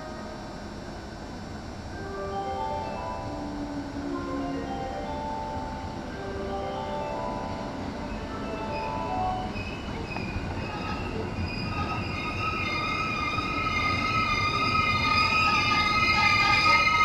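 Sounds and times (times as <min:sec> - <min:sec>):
train wheels rumbling on rail: 0:00.0 - 0:17.0
wheel and brake squeal: 0:08.2 - 0:17.0.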